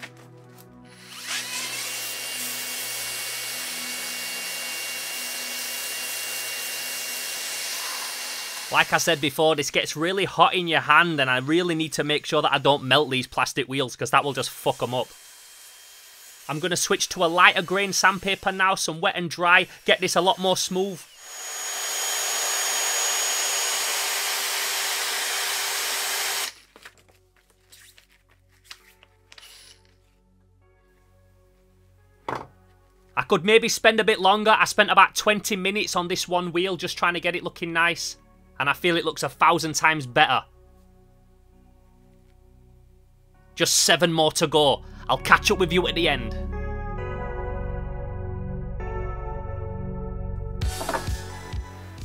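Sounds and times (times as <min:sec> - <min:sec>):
faint synth background music: 0:00.0 - 0:15.0, 0:26.5 - 0:52.0
drill motor whine: 0:00.9 - 0:09.2, 0:14.5 - 0:19.0, 0:19.6 - 0:26.6, 0:29.4 - 0:30.0, 0:50.6 - 0:51.9
sanding hiss: 0:14.6 - 0:18.9.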